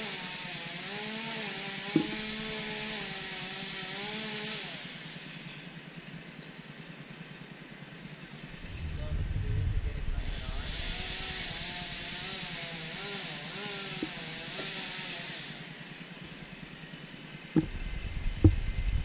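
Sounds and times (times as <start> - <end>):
chainsaw cutting: 0.0 - 5.9, 10.2 - 19.0
sharp knock: 2.0 - 2.3.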